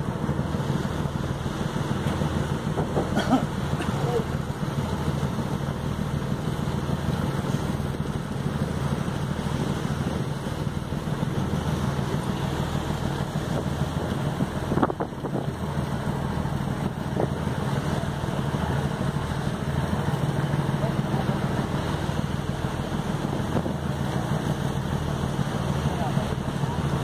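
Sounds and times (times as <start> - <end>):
sea rushing: 0.0 - 27.0
ship engine droning: 0.0 - 27.0
wind on microphone: 13.3 - 15.9.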